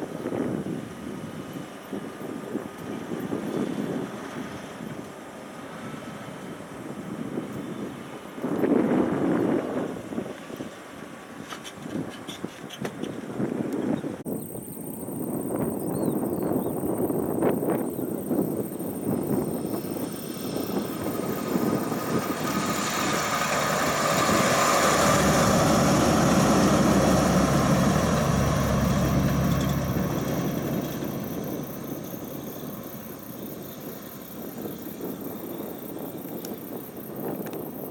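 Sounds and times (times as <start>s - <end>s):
heavy truck driving past: 19.8s - 35.9s.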